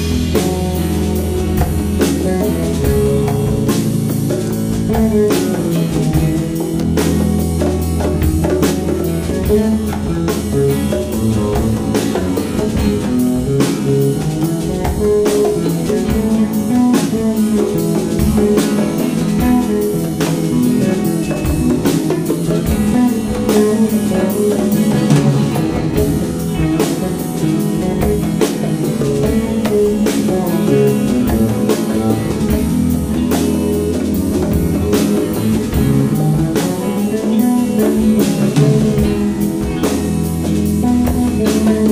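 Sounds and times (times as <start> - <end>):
congas: 0.0 - 41.9
drum kit: 0.0 - 41.9
electric bass: 0.0 - 41.9
electric guitar: 0.0 - 41.9.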